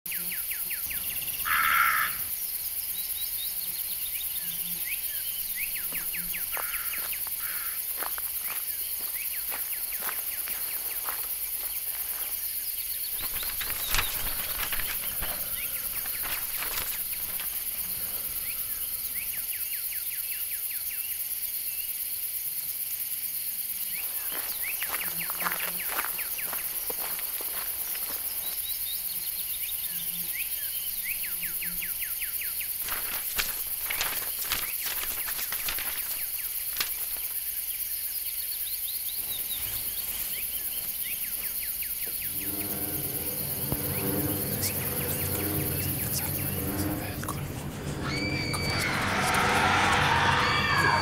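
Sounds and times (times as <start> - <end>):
insect hiss: 0.1 - 51.0
raven call: 1.4 - 2.3, 5.8 - 7.9, 42.0 - 51.0
bird chirps: 12.8 - 17.8
short crackles: 32.8 - 37.3.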